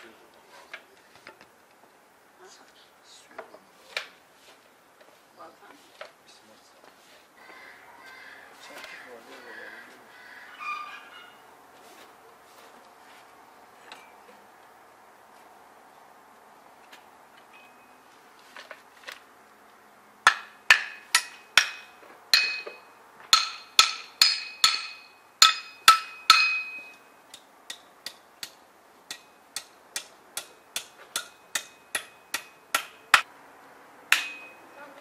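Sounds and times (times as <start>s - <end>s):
hammer striking metal: 20.2s - 33.2s, 34.1s - 34.6s.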